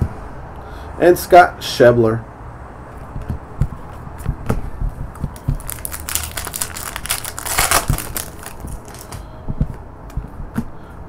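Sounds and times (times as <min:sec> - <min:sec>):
foil wrapper tearing and crinkling: 0:05.6 - 0:09.2.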